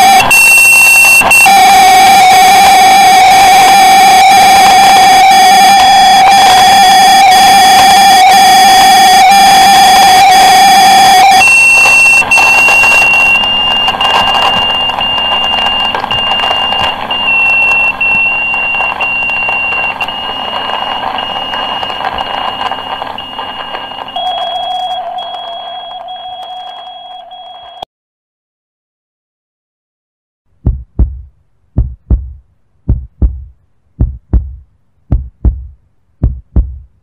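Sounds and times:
noisy drone: 0.0 - 27.8
high electronic beep: 0.0 - 27.9.

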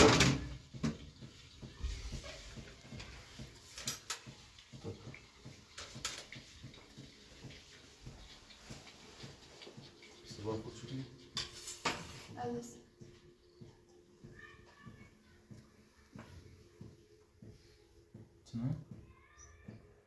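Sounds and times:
colander clattering onto metal tray: 0.0 - 1.0
kitchenware knocks and clicks: 0.0 - 1.3.

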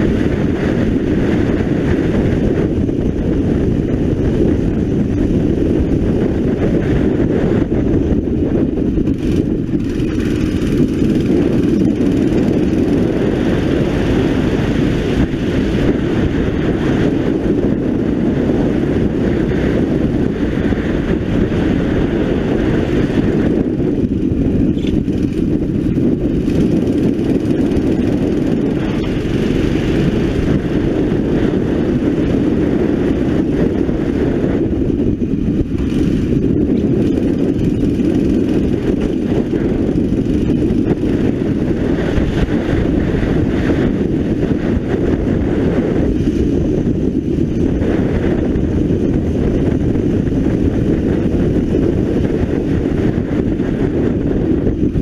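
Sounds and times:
wind rush on microphone: 0.0 - 55.0
kart engine running under load: 8.0 - 18.7, 21.0 - 46.2.

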